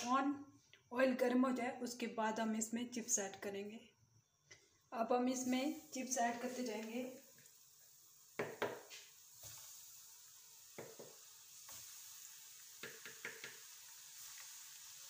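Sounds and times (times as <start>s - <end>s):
oil sizzling in frying pan: 5.0s - 15.0s
oil crackles and pops: 5.8s - 15.0s.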